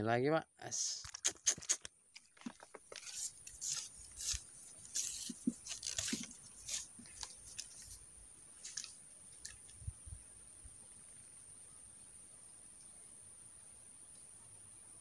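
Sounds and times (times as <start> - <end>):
crunching and rustling crackles: 1.2 - 8.0.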